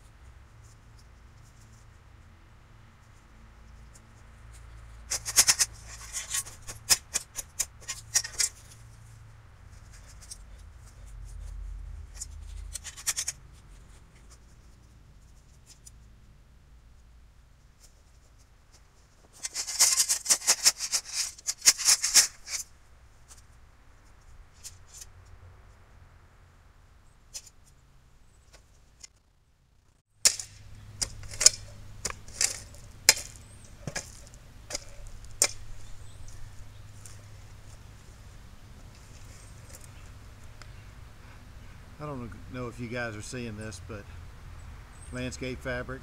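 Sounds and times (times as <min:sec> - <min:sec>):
gravel rattling onto ground: 0:04.8 - 0:14.5, 0:17.8 - 0:25.1, 0:30.2 - 0:40.6.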